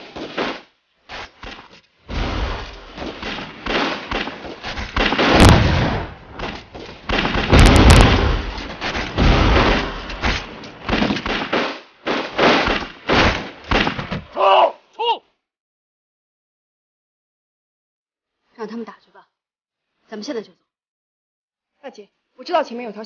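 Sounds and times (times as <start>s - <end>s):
rapid gunshots: 0.0s - 14.2s
heavy explosions: 2.0s - 14.1s.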